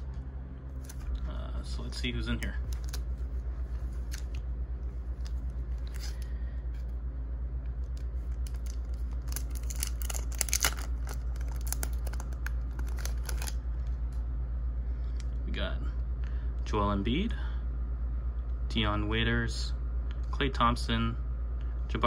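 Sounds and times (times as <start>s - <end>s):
steady low hum: 0.0s - 22.0s
plastic wrapper crinkling and tearing: 2.6s - 3.2s, 5.1s - 6.3s, 7.8s - 13.6s.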